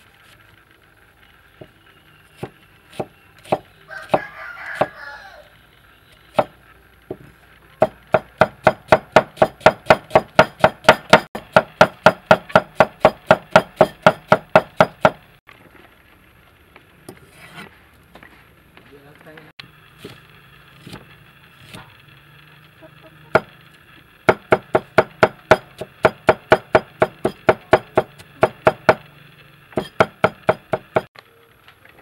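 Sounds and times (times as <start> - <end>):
cleaver chopping on wooden block: 7.8 - 15.2, 24.3 - 29.0, 29.8 - 31.1.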